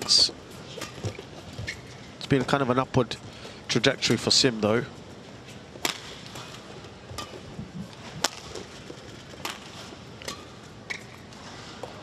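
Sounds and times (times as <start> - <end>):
rackets striking shuttlecock: 0.8 - 1.8, 5.8 - 11.3.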